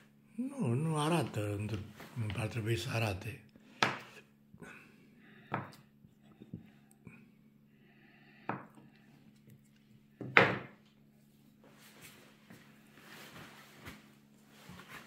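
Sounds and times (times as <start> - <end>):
faint low hum: 0.0 - 15.0
knife knocking on cutting board: 10.2 - 10.7.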